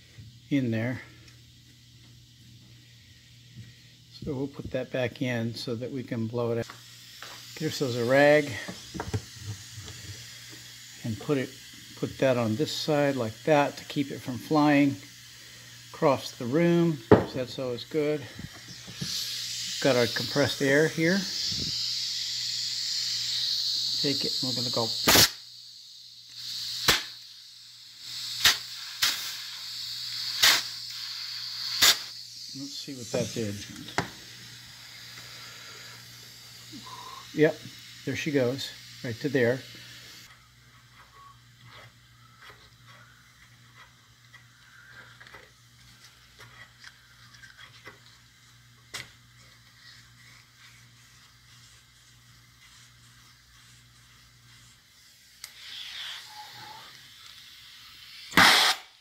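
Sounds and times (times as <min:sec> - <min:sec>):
air hissing: 0:00.0 - 0:59.0
compressed air blasts: 0:06.6 - 0:40.3, 0:49.8 - 0:59.0
sharp click: 0:58.3 - 0:58.9.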